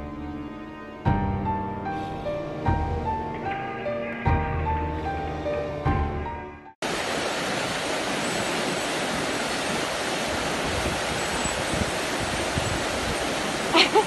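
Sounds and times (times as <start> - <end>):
background music: 0.0 - 6.8
river rushing over rocks: 6.8 - 14.0.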